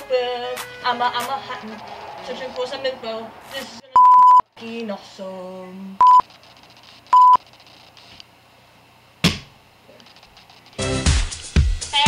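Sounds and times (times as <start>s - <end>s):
censor bleeps: 4.0s - 4.5s, 6.0s - 6.3s, 7.2s - 7.4s.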